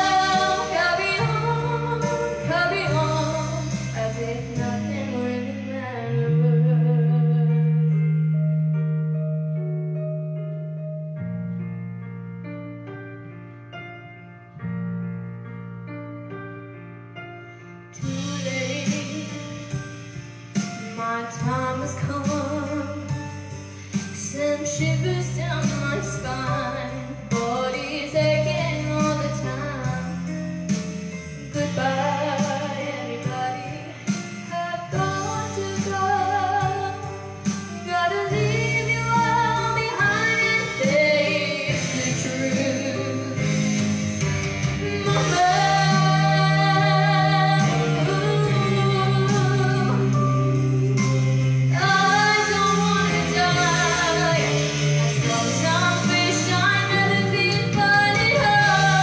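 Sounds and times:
woman singing with vibrato: 0:00.0 - 0:07.6, 0:44.8 - 0:50.5, 0:51.7 - 0:59.0
held keyboard chords: 0:00.0 - 0:59.0.

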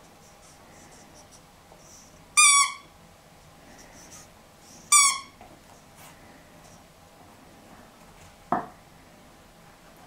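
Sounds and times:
squeaky dog toy squeak: 0:02.4 - 0:02.9, 0:04.9 - 0:05.4.

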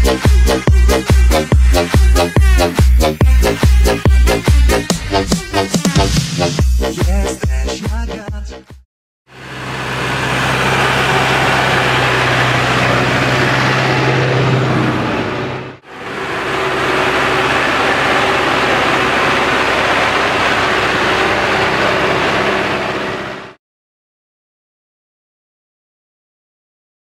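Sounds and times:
tractor diesel engine under load: 0:09.3 - 0:23.6.

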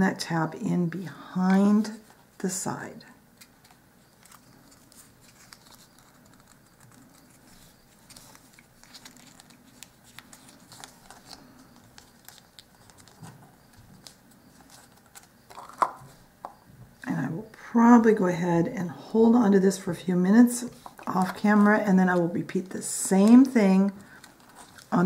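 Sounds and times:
card rustling and clicking: 0:03.3 - 0:16.6, 0:23.2 - 0:25.0.

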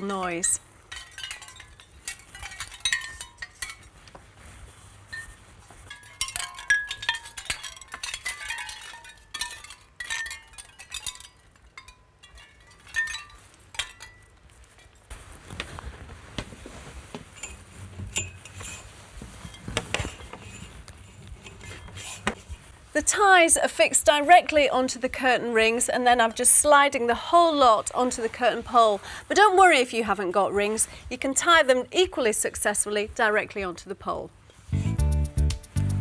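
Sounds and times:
fabric rustling: 0:00.0 - 0:33.4
shell discs clinking: 0:05.2 - 0:15.1.

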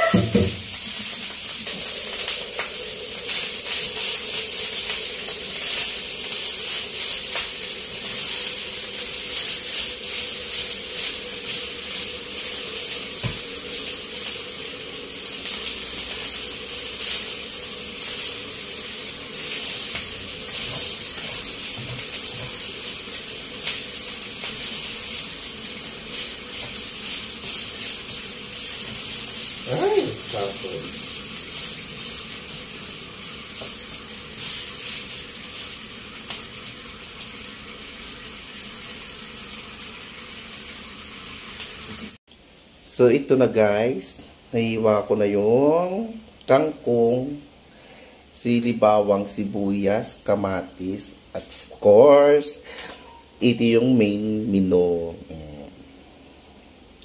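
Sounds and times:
rice sizzling in a pan: 0:00.0 - 0:54.7.

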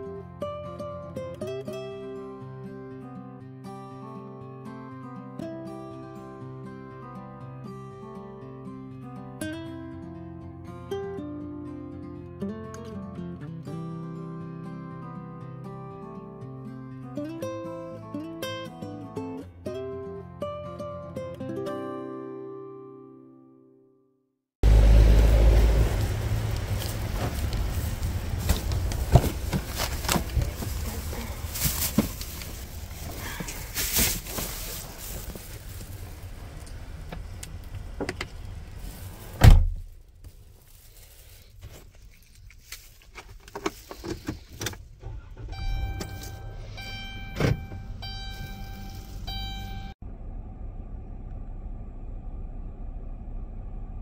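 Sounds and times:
footsteps on pavement: 0:25.4 - 0:36.1
knocks and rustling: 0:25.8 - 0:36.2
low rumble: 0:45.0 - 0:54.0
steady high tone: 0:45.4 - 0:50.0.

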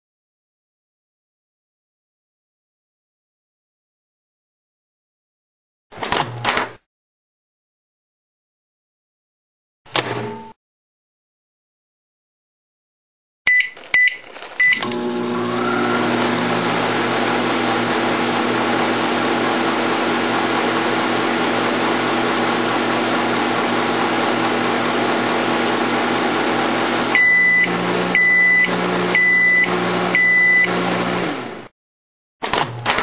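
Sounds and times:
microwave beeps: 0:13.5 - 0:19.6, 0:26.7 - 0:31.0
microwave oven humming: 0:14.8 - 0:31.7.

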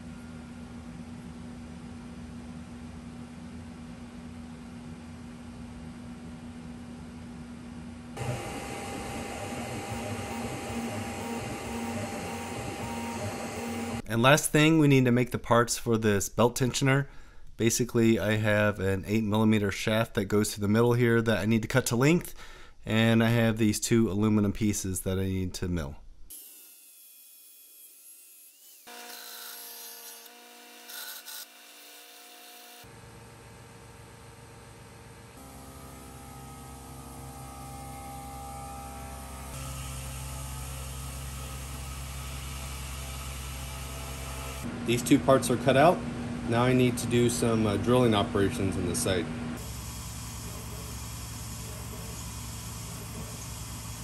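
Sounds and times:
stepper motor tones: 0:08.2 - 0:14.0, 0:35.4 - 0:45.1, 0:45.8 - 0:54.0.

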